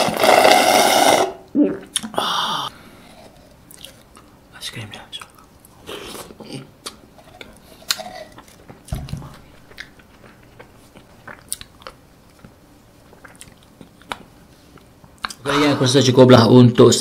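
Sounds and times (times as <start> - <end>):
mouth clicks and lip smacks: 1.9 - 2.2, 9.7 - 15.4.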